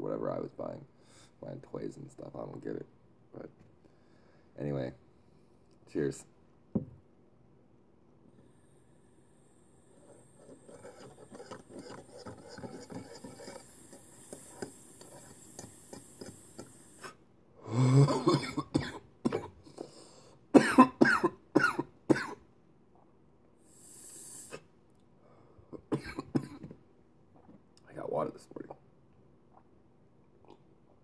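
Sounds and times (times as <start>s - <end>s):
man inhaling: 3.8s - 4.6s, 8.3s - 17.2s, 19.7s - 20.4s, 23.6s - 24.6s
man coughing: 17.7s - 19.6s, 20.6s - 22.4s, 25.8s - 26.8s.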